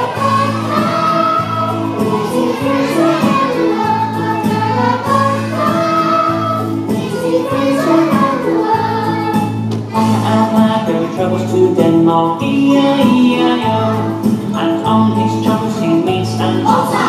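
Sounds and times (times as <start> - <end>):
backing music: 0.0 - 17.0
young children singing: 0.0 - 17.0.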